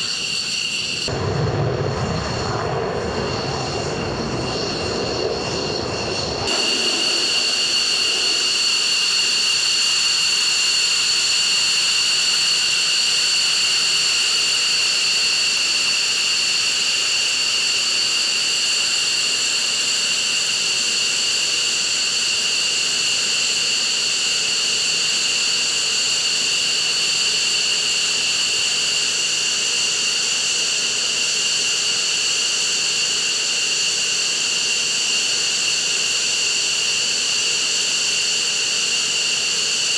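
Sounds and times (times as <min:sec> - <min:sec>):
low jet rumble: 0:00.0 - 0:10.0
jet engine hiss: 0:00.0 - 0:39.9
jet engine turbine whine: 0:00.0 - 0:39.9.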